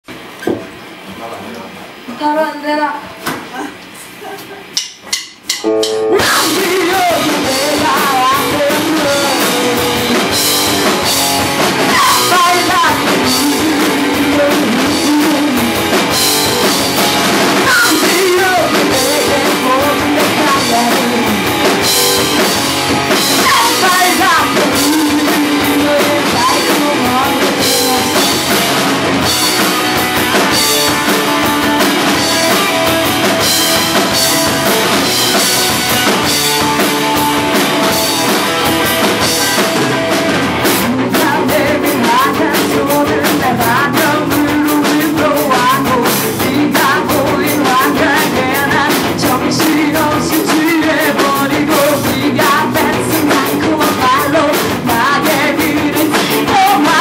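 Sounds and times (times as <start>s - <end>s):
drum kit with cymbal hits: 3.2s - 57.0s
electric guitars: 5.4s - 57.0s
person singing: 5.7s - 10.2s, 11.8s - 15.8s, 17.6s - 22.4s, 23.3s - 28.6s, 40.8s - 57.0s.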